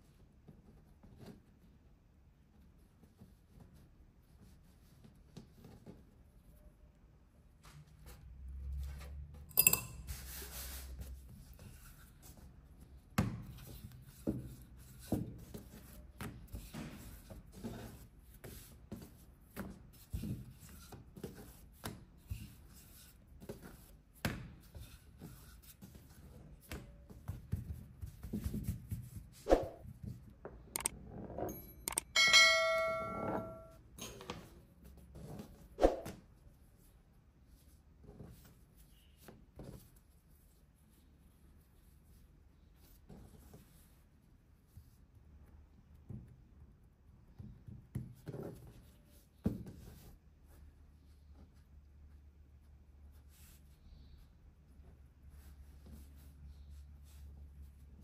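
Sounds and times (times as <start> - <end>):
short metallic ring: 9.5 - 10.1, 31.5 - 34.1.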